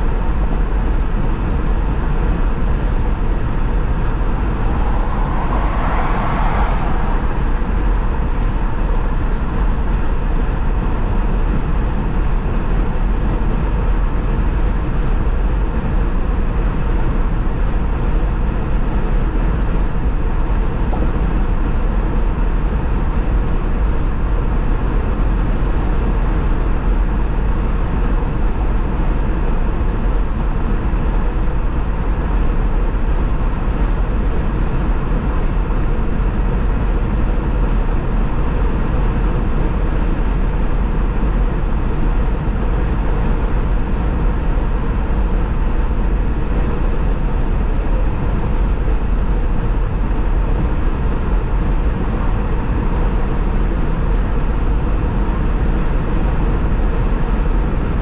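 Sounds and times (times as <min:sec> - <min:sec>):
low engine rumble: 0:00.0 - 0:58.0
tyre and road noise: 0:01.4 - 0:11.5.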